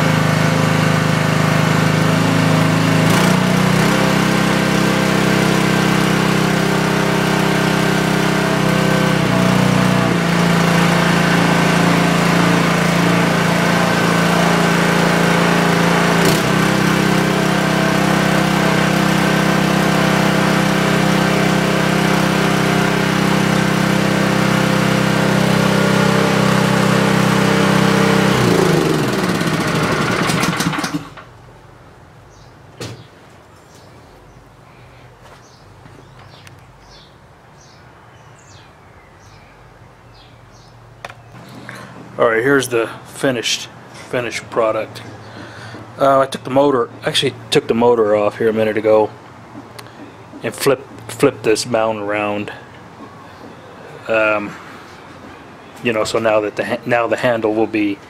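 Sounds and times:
boat motor engine running: 0:00.0 - 0:31.0, 0:41.3 - 0:54.6
engine winding down: 0:00.0 - 0:31.5, 0:40.5 - 0:58.0.

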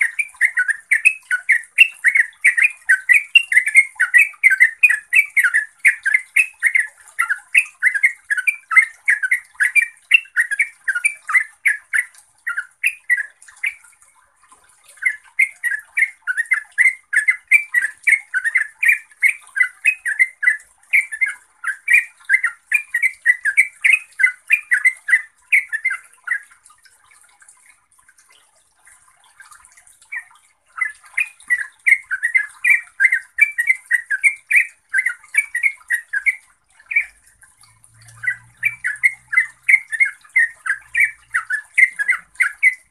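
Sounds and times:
bird singing chattering notes: 0:00.0 - 0:13.8, 0:15.0 - 0:26.4, 0:30.2 - 0:42.9.

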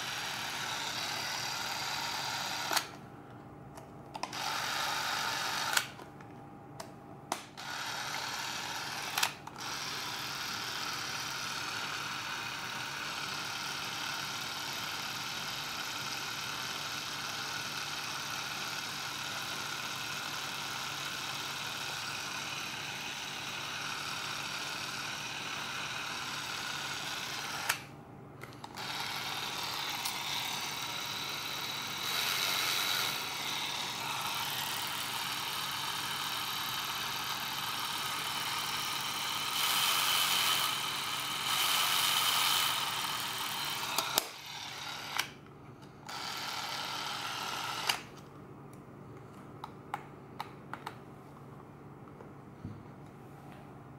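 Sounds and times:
movie camera motor whirring: 0:00.0 - 0:03.0, 0:04.2 - 0:06.0, 0:07.3 - 0:45.4, 0:46.0 - 0:48.2
motor click: 0:02.2 - 0:03.0, 0:04.1 - 0:06.1, 0:08.9 - 0:09.7, 0:27.3 - 0:30.8, 0:41.5 - 0:45.4, 0:46.1 - 0:48.2.

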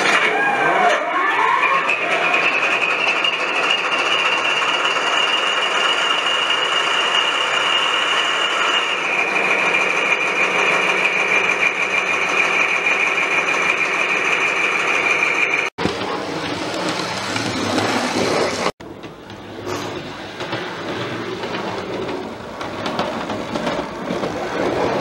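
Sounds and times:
high-pitched whine: 0:02.5 - 0:18.7.

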